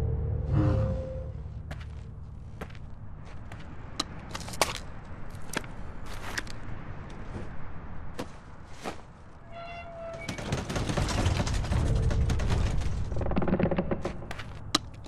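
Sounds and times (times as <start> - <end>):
low rumble: 0.0 - 4.0.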